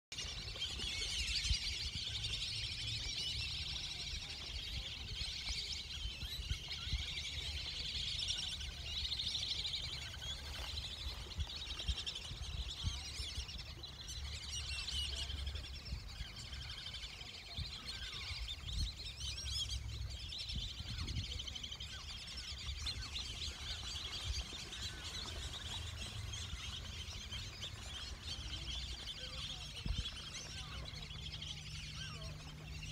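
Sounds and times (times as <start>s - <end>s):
birds chirping and calling: 0.2s - 32.9s
low uneven rumble: 0.2s - 32.9s.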